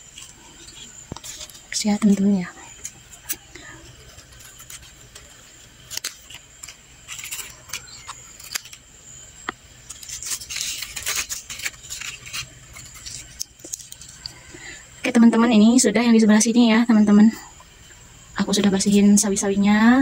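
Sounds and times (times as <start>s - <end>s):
leaves rustling: 0.0s - 14.8s.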